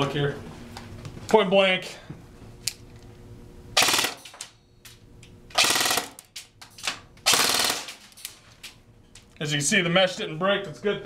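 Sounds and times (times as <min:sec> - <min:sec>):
airsoft gun firing bursts: 0:03.8 - 0:04.2, 0:05.6 - 0:06.2, 0:07.2 - 0:08.0.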